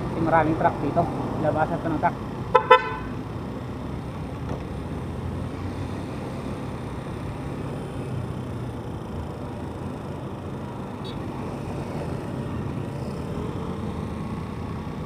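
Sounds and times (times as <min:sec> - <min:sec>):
motorcycle engine: 0:00.0 - 0:15.0
wind and road noise: 0:00.0 - 0:15.0.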